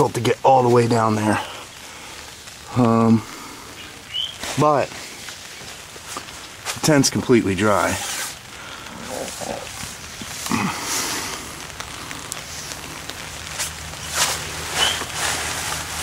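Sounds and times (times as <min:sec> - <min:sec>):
rain pattering on tent fabric: 0:00.0 - 0:16.0
tent fabric rustling: 0:04.0 - 0:16.0.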